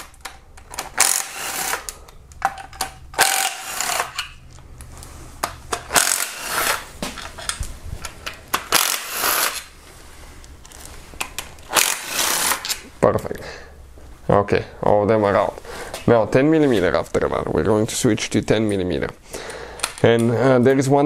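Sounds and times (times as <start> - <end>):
socket wrench clinking and rattling: 0.0 - 4.4.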